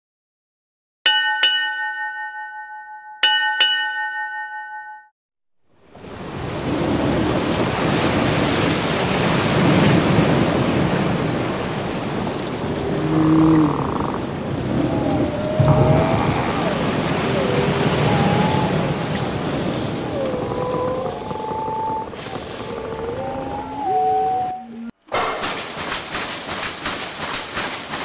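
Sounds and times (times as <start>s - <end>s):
ship's bell ringing: 1.1s - 5.1s
surf and harbour water: 5.7s - 28.0s.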